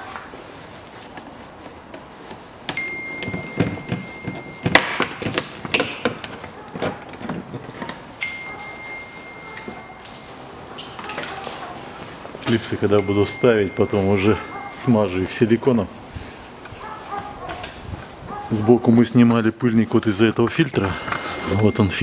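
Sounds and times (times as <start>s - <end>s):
high steady ringing tone: 2.7s - 5.0s, 8.2s - 10.6s, 12.9s - 15.2s, 21.2s - 22.0s.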